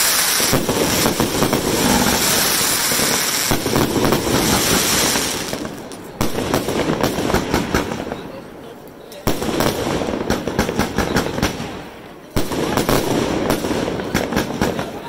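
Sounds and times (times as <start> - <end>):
loud firework bang: 0.0 - 8.0
fireworks launching and bursting: 0.0 - 8.5, 9.2 - 15.0
fireworks crackling: 0.0 - 15.0.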